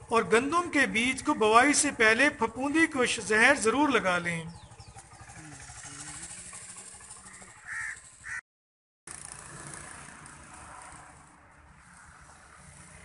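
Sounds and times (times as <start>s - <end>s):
crow cawing: 7.2s - 8.4s.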